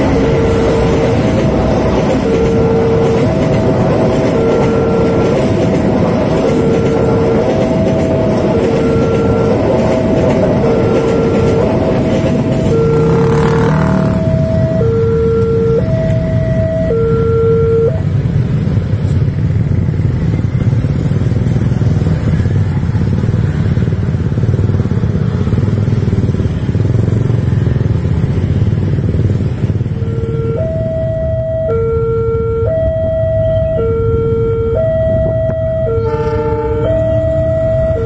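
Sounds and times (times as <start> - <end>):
two-tone crossing alarm: 0.0 - 18.6, 29.7 - 38.0
motorcycle engines pulling away: 7.8 - 17.1, 18.1 - 31.6.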